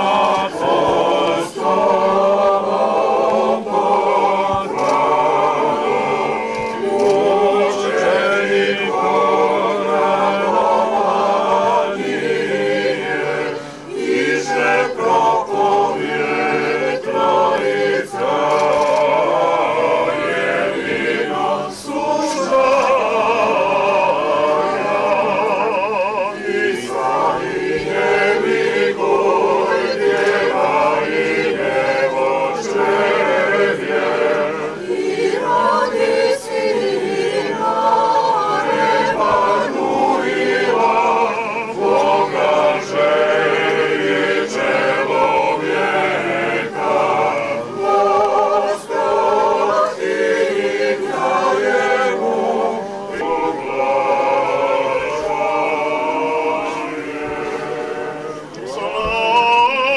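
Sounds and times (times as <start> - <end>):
choir chanting unaccompanied: 0.0 - 59.9.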